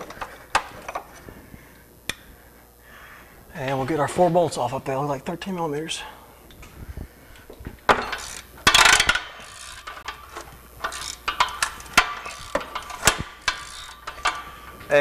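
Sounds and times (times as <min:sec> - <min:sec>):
metal rattle: 0:07.9 - 0:15.0
ratchet wrench clicking: 0:08.1 - 0:14.5.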